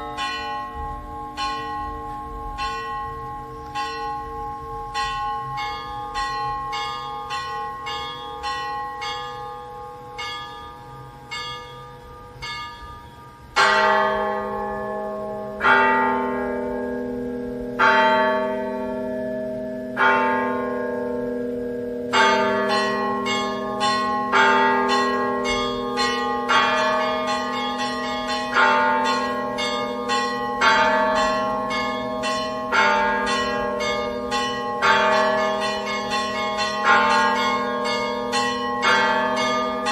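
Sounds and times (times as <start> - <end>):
small church bells chiming quickly: 0.0 - 39.9.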